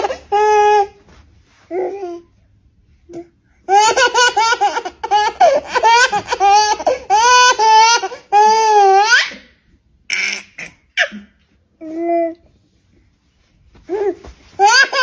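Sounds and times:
baby giggling and squealing: 0.0 - 1.0, 10.1 - 11.4, 13.9 - 15.0.

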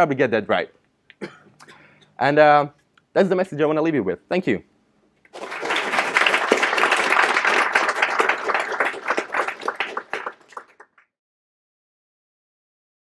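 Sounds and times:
audience applauding: 5.3 - 11.1.

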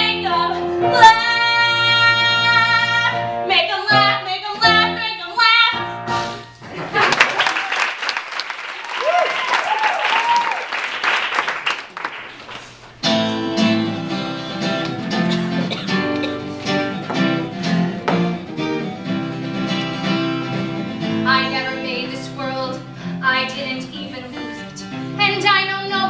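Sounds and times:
woman singing: 0.0 - 5.8, 21.2 - 26.0
live band playing: 5.7 - 6.7, 13.0 - 26.0
applause: 6.7 - 12.8
plucked strings: 13.0 - 22.6.

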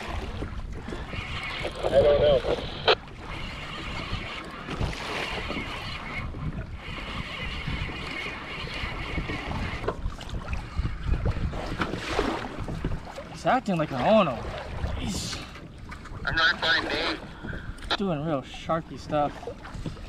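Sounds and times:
wind buffeting microphone: 0.0 - 13.3
water splashing against kayak hull: 0.0 - 20.0.

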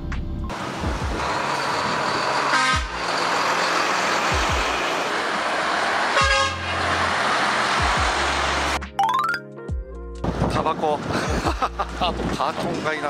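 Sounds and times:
truck engine and road noise: 0.0 - 13.0
truck horn tooting: 1.3 - 3.6, 6.0 - 7.1.

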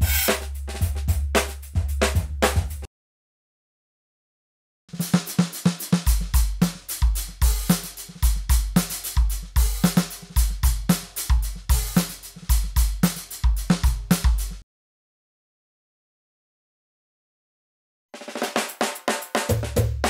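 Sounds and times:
deep kick drum: 0.0 - 2.9, 6.1 - 14.6
snare and hi-hat hits: 0.0 - 2.9, 4.9 - 14.6, 18.2 - 20.0.

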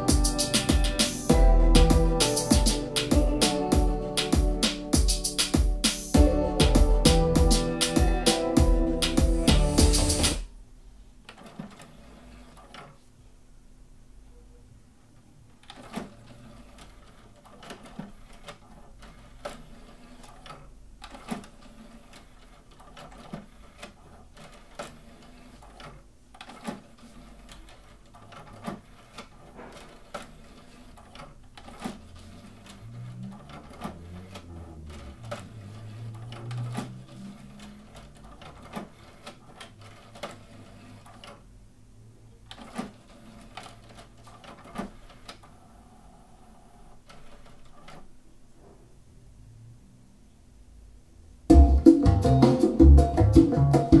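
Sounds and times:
low motor whir: 32.0 - 38.0.

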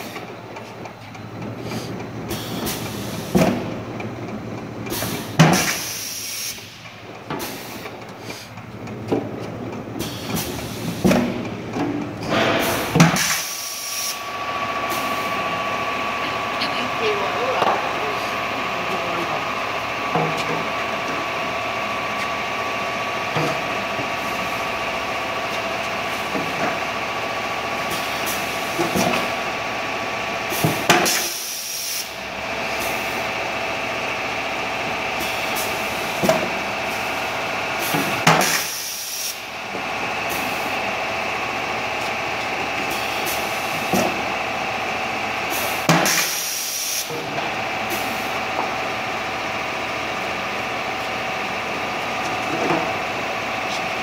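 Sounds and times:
compressed air hiss: 5.0 - 6.8, 12.7 - 14.2, 37.9 - 39.4, 45.5 - 47.1
machine humming: 8.5 - 30.8.

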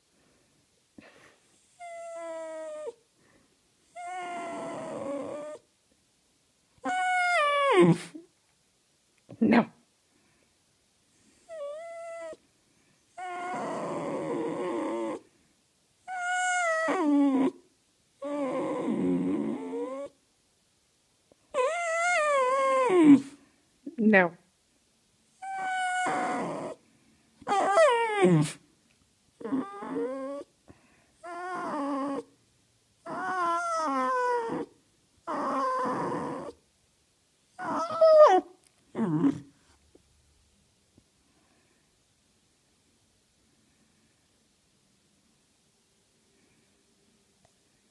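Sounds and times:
dog howling whines: 1.8 - 3.0, 3.9 - 5.6, 6.8 - 8.1, 11.5 - 12.4, 13.2 - 15.2, 16.1 - 17.6, 18.2 - 20.2, 21.5 - 23.3, 25.4 - 26.8, 27.4 - 28.6, 29.4 - 30.5, 31.2 - 32.3, 33.0 - 36.6, 37.6 - 39.4.

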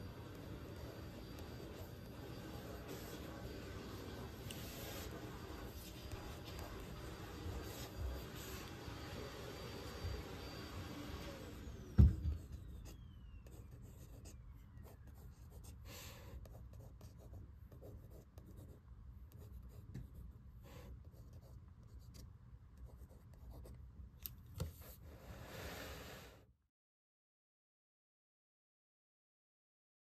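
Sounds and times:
pencil scratching on paper: 0.0 - 9.1, 12.3 - 22.2, 22.8 - 23.8.

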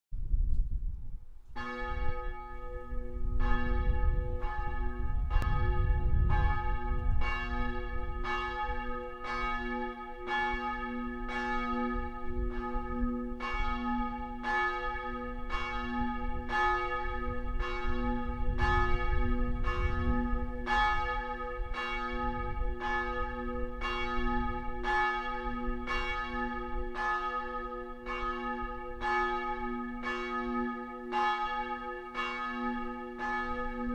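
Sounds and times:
church bell tolling: 1.6 - 33.9
low rumble: 3.0 - 8.5, 16.3 - 21.0.

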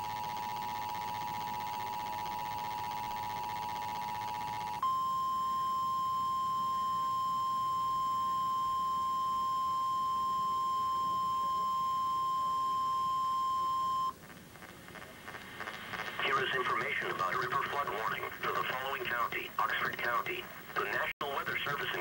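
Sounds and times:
steady warning tone: 0.0 - 14.2.

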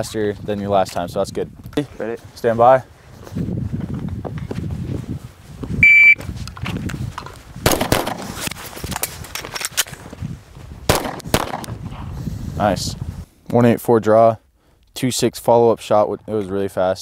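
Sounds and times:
shot timer beep: 5.8 - 6.2
pistol shots with echo: 7.6 - 8.3, 10.9 - 11.8.

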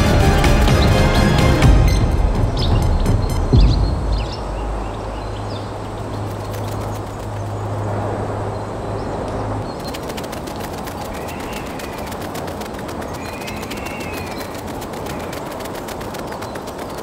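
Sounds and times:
wind: 0.0 - 17.0
bird chirps: 1.9 - 7.6, 8.5 - 16.9
rapid clicks: 9.6 - 17.0.

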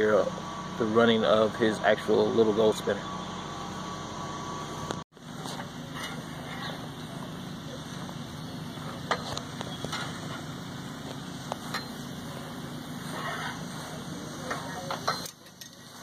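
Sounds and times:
small engine humming: 0.0 - 16.0
faint voices: 5.2 - 16.0.

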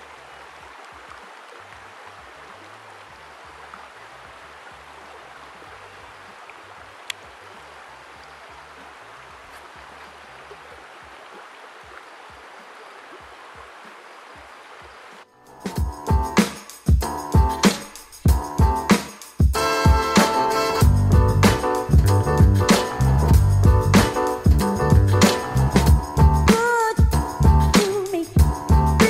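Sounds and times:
mountain stream rushing: 0.0 - 15.3.

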